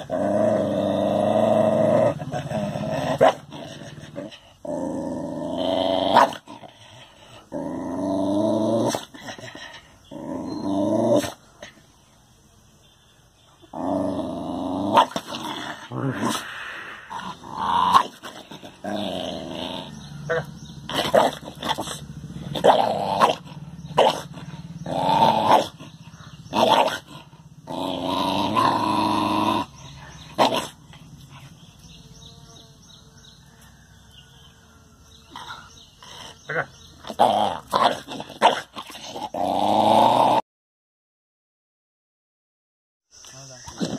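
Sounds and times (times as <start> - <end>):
dog growling: 0.0 - 11.8, 13.6 - 31.8, 35.2 - 40.4.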